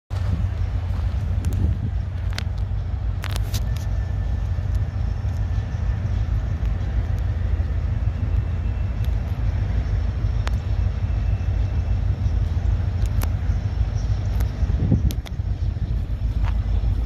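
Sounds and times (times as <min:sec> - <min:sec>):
diesel locomotive rumble: 0:00.1 - 0:17.0
faint clicks: 0:12.4 - 0:13.5.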